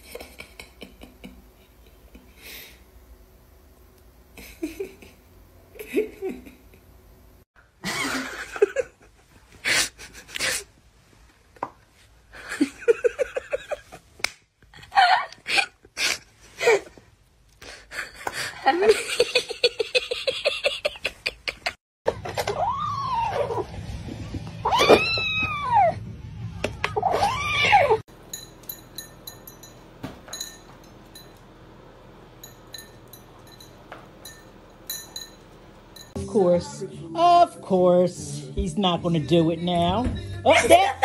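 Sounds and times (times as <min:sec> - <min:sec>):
person giggling: 0:00.0 - 0:02.7, 0:04.4 - 0:05.2, 0:17.7 - 0:21.8.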